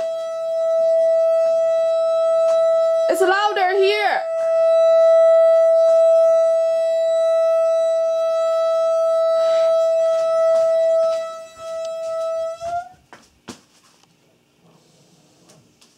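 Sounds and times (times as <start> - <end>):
high-pitched siren-like tone: 0.0 - 13.0.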